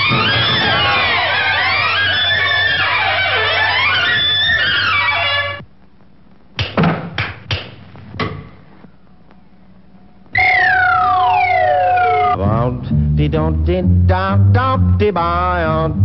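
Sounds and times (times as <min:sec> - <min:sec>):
sharp cartoon knocks: 0:06.6 - 0:08.5
descending whistle tone: 0:10.3 - 0:12.4.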